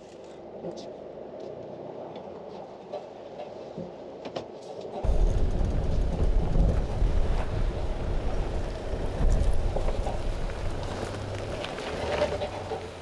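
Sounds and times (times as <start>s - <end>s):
van engine humming: 5.0s - 13.0s
vehicle body creaks and knocks: 5.0s - 13.0s
wind rumble on microphone: 5.0s - 13.0s.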